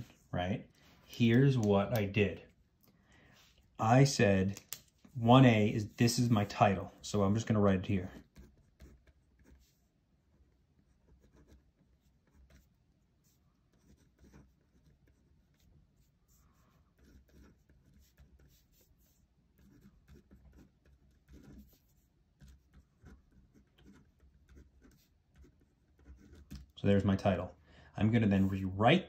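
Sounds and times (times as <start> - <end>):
pen scratching on paper: 8.0 - 26.8.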